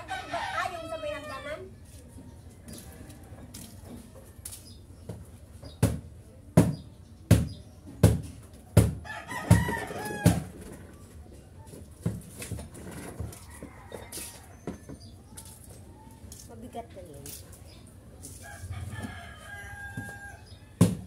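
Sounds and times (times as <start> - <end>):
rooster crowing: 9.0 - 10.5, 13.4 - 14.6, 18.4 - 21.0.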